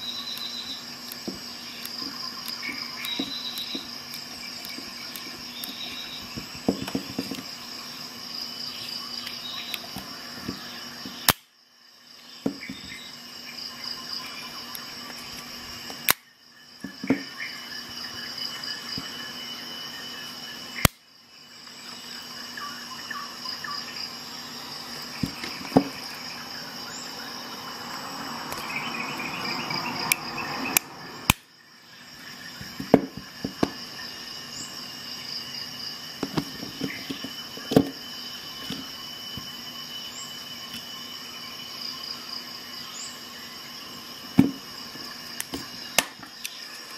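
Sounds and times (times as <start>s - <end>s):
crickets chirping: 0.0s - 46.9s
loud sharp snaps: 11.2s - 11.6s, 20.8s - 21.0s, 30.8s - 31.5s.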